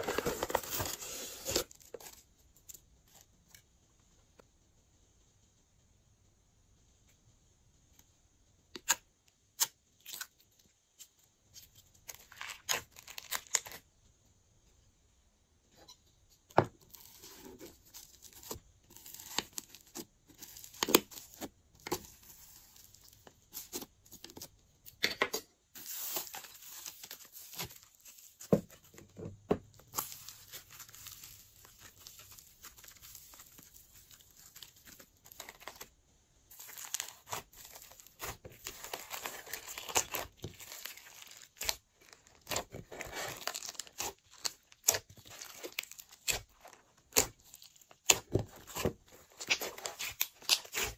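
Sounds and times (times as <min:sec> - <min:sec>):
slime crackling and popping: 0:36.5 - 0:50.9.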